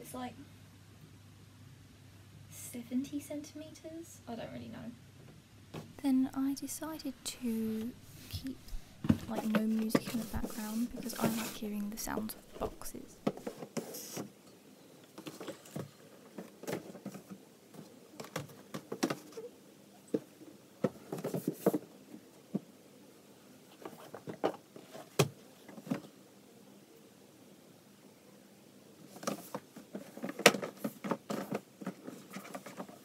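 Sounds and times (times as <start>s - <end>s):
cardboard scraping rustles: 7.6s - 14.3s, 29.1s - 33.0s.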